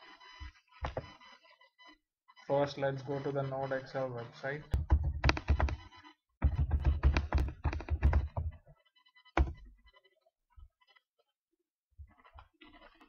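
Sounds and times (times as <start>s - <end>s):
computer keyboard typing: 4.7s - 5.8s, 6.4s - 8.6s.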